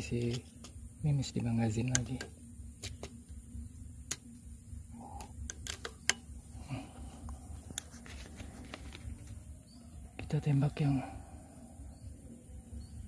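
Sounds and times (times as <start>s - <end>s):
air rifle clicks and taps: 5.2s - 6.2s.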